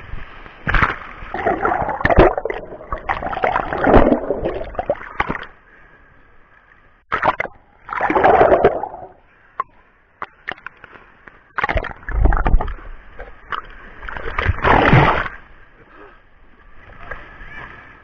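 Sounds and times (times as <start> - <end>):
sea water splashing: 0.0 - 6.0, 7.1 - 9.3, 10.4 - 18.0.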